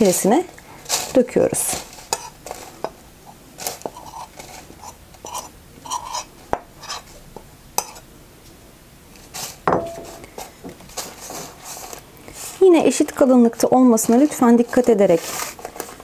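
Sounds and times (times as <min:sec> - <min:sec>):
metal spoon scraping a bowl: 0:01.9 - 0:02.6, 0:03.6 - 0:07.2, 0:07.8 - 0:08.0.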